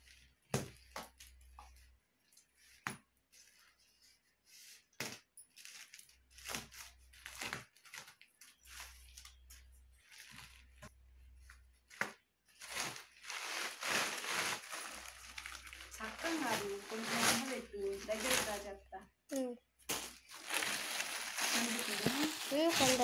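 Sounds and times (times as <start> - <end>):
plastic wrapping rustling: 5.5 - 23.0
plastic sheet crinkling: 11.8 - 18.9, 19.9 - 23.0.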